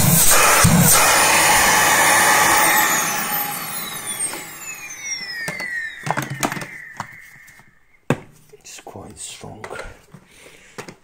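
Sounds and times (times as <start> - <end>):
vacuum cleaner motor whine: 0.0 - 8.4.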